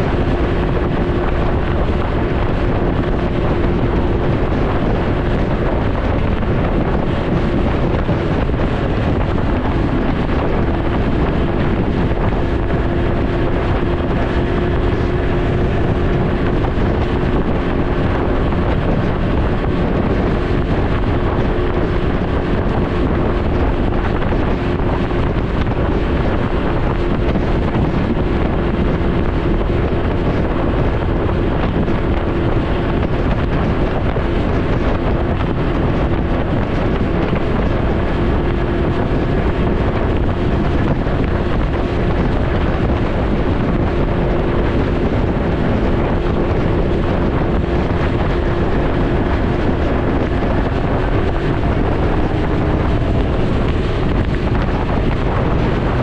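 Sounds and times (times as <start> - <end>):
engine droning while riding: 0.0 - 56.0
wind buffeting microphone: 0.0 - 56.0.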